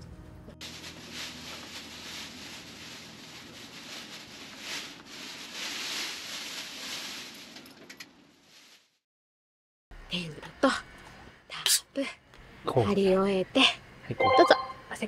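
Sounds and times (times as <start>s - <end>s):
tent fabric rustling: 0.6s - 9.0s.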